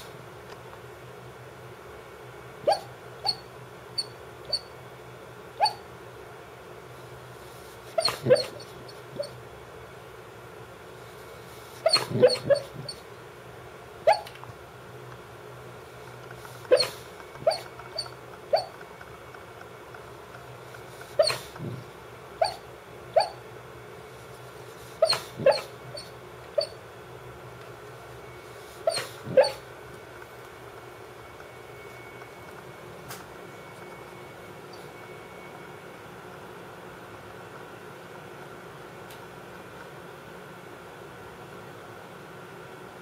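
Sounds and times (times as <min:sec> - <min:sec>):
dog barking: 0:02.6 - 0:03.4, 0:05.6 - 0:05.8, 0:08.0 - 0:09.3, 0:11.8 - 0:13.0, 0:14.0 - 0:14.3, 0:16.7 - 0:18.7, 0:21.2 - 0:21.5, 0:22.4 - 0:22.6, 0:23.2 - 0:23.4, 0:25.0 - 0:25.7, 0:28.8 - 0:29.6.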